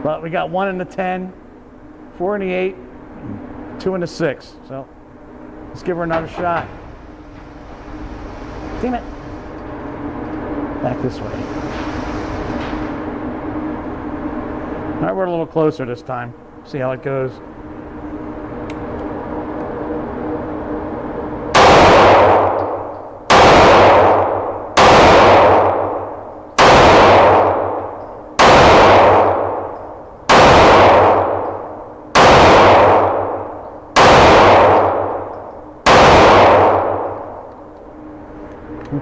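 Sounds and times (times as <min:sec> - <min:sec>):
pistol shots echoing indoors: 0:21.5 - 0:37.8.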